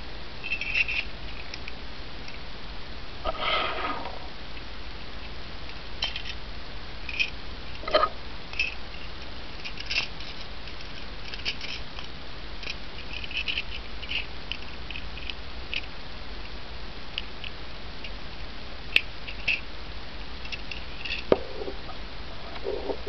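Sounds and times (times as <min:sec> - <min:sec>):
steady low hum: 0:00.0 - 0:23.0
metal parts clicking and scraping: 0:00.4 - 0:01.6, 0:06.0 - 0:06.4, 0:07.1 - 0:15.9, 0:20.4 - 0:21.3.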